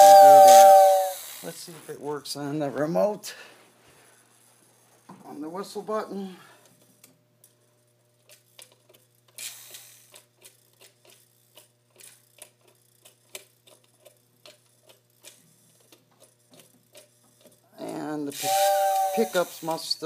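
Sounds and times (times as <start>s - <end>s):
model train humming: 0.0s - 1.4s, 18.3s - 19.9s.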